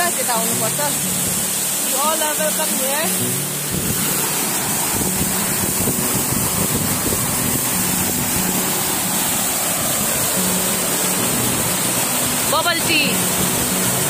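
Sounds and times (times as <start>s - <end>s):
waterfall rushing over rocks: 0.0s - 14.0s.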